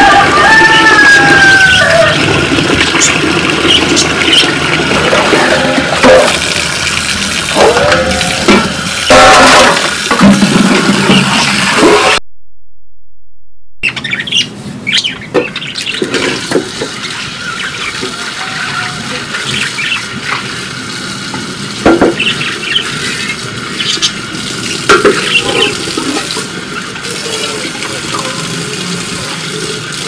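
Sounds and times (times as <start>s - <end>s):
water running from tap: 0.0s - 12.1s, 15.8s - 30.0s
birds chirping: 13.8s - 16.1s, 16.9s - 20.5s, 22.1s - 24.3s.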